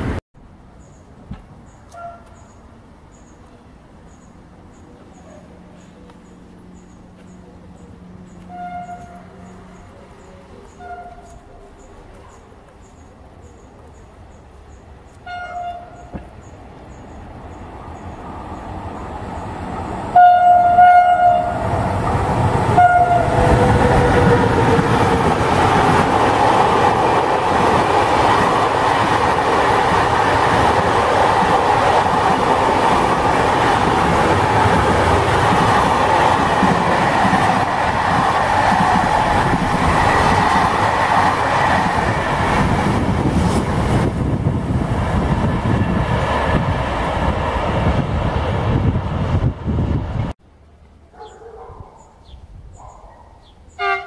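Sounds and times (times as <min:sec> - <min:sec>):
freight train passing: 0:00.0 - 0:51.7, 0:53.5 - 0:54.0
train wheels on rails: 0:01.2 - 0:50.4
train horn blasts: 0:01.9 - 0:02.4, 0:08.4 - 0:09.8, 0:10.7 - 0:11.5, 0:15.2 - 0:16.1, 0:20.1 - 0:22.0, 0:22.6 - 0:24.7, 0:53.7 - 0:54.0.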